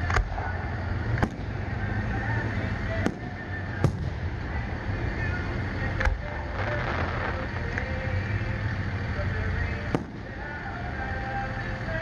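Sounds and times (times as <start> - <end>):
fireworks bursting: 0.0 - 12.0
low background rumble: 0.0 - 12.0.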